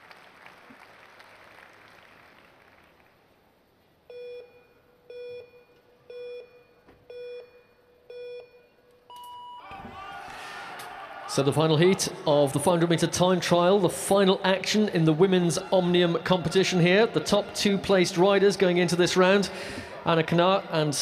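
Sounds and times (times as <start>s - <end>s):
long high beep: 4.1s - 9.7s
short low beeps: 4.1s - 9.7s.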